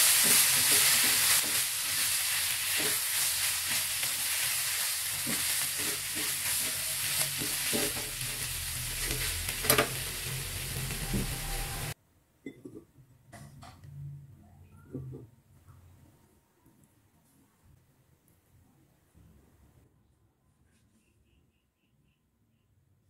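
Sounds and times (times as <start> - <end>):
vegetables sizzling in a pan: 0.0 - 12.0
spatula scraping a pan: 0.1 - 12.0.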